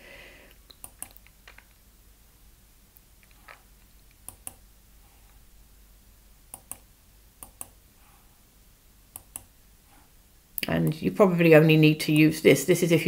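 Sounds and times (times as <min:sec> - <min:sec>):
computer mouse clicking: 0:00.7 - 0:01.7, 0:03.2 - 0:04.6, 0:06.5 - 0:07.8, 0:09.1 - 0:09.5.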